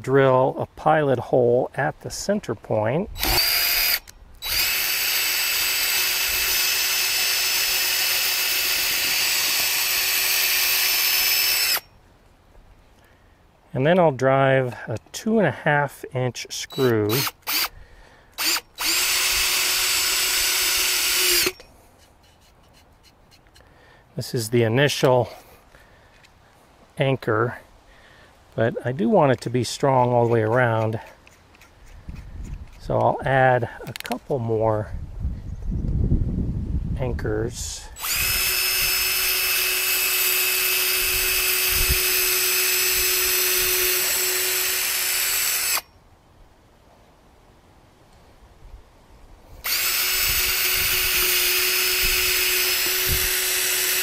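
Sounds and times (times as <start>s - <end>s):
cordless drill driving screw: 3.2s - 11.9s, 16.6s - 23.6s, 38.0s - 45.8s, 49.6s - 54.0s.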